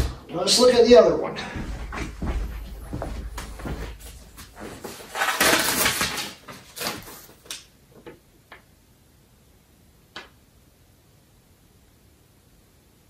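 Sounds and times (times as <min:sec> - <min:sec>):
packing material rustling: 0:02.6 - 0:07.6.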